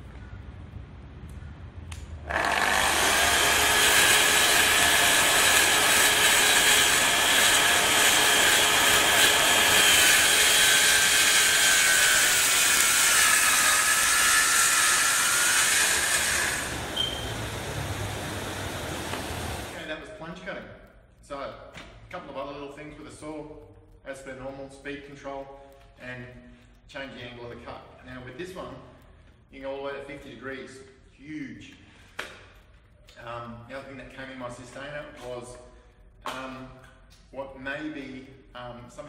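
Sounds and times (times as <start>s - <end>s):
circular saw cutting wood: 2.3s - 20.0s.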